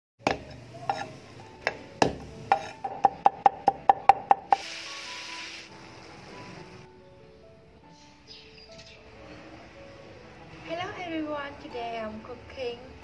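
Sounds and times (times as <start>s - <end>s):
light music: 0.2s - 13.0s
brief hiss: 4.5s - 5.8s.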